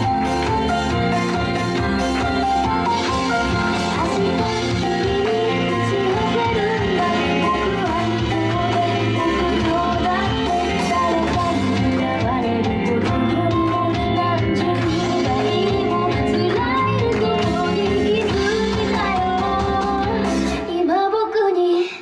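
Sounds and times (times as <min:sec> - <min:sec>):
pop song over speakers: 0:00.0 - 0:22.0.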